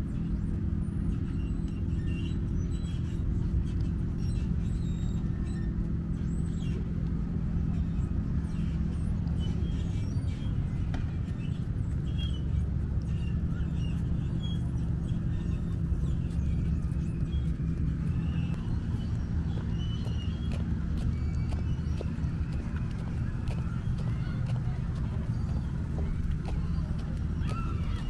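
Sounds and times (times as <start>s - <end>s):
steady low rumble: 0.0s - 28.0s.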